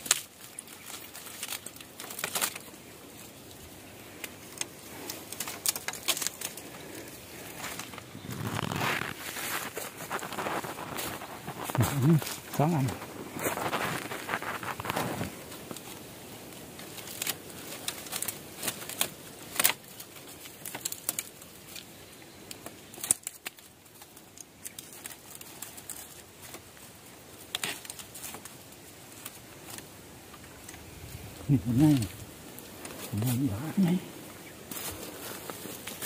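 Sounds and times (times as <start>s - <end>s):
sharp snaps of stems: 0.0s - 26.6s
dry bamboo and leaves rustling: 0.0s - 36.0s.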